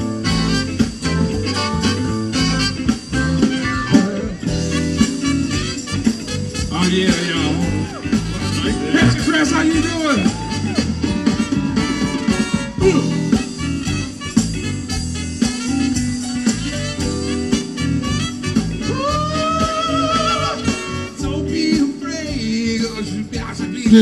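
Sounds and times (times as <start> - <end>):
live rock band playing: 0.0 - 24.0
person singing: 11.9 - 13.5, 18.9 - 24.0.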